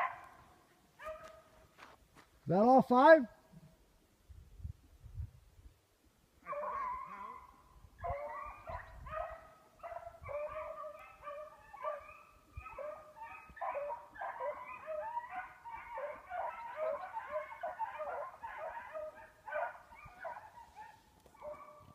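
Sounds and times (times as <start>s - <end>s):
hounds baying: 6.4s - 21.9s.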